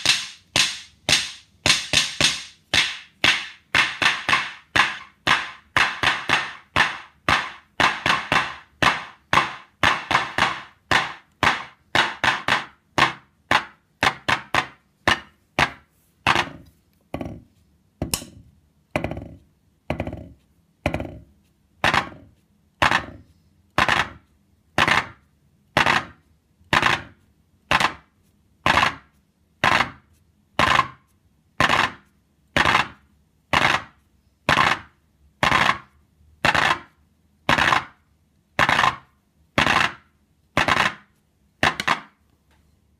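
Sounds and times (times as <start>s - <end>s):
drumstick taps: 0.0s - 18.4s.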